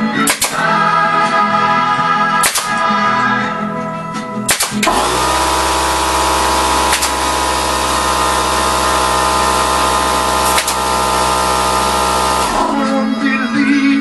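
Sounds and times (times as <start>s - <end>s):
electric drill running: 4.8s - 12.8s.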